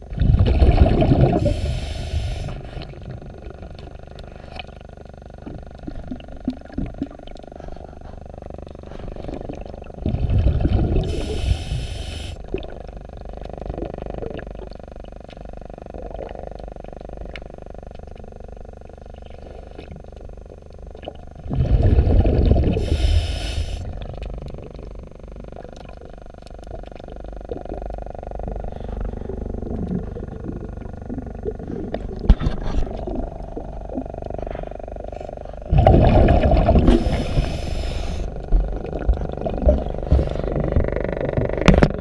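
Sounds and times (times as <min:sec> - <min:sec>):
steady low underwater rumble: 0:00.0 - 0:42.0
regulator exhaust bubbles rushing: 0:29.3 - 0:37.2.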